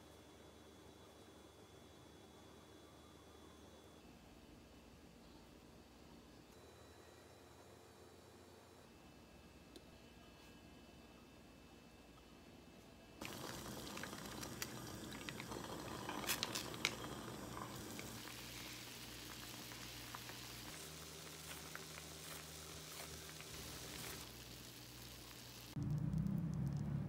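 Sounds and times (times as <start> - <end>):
liquid boiling and bubbling: 13.2 - 26.8.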